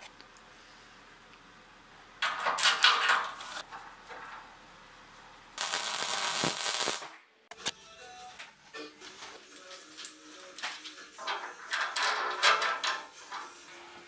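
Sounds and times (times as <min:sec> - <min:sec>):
welding arc crackling: 0:05.6 - 0:07.2.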